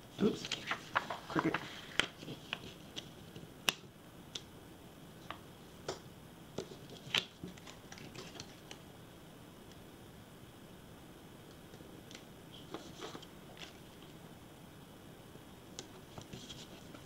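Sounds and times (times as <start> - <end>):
fingers handling paper stickers: 0.2 - 3.9.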